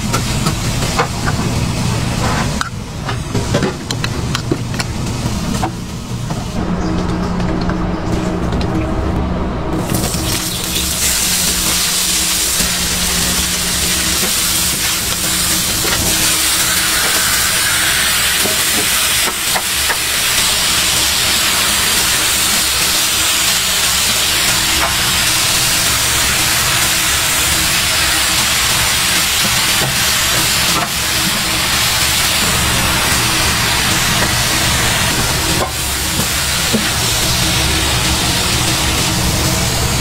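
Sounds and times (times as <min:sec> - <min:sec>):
food sizzling on a griddle: 0:10.1 - 0:40.0.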